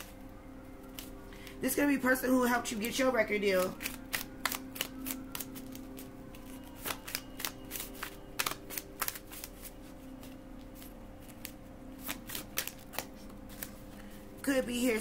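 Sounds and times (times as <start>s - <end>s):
steady low hum: 0.0s - 15.0s
cards being shuffled: 2.9s - 14.1s.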